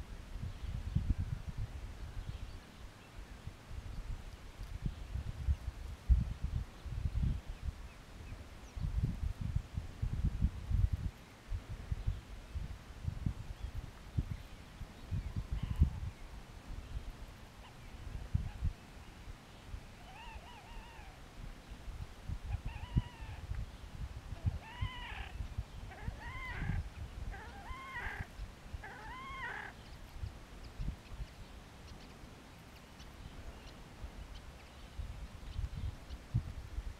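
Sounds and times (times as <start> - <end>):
grebe calling: 20.0 - 21.2, 22.5 - 23.5, 24.4 - 29.9.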